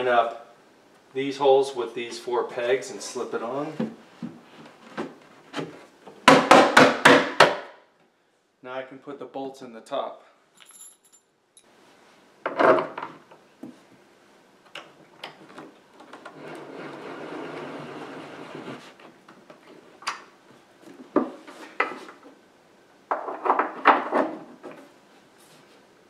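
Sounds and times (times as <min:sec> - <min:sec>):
metal clinks: 0:10.6 - 0:11.7.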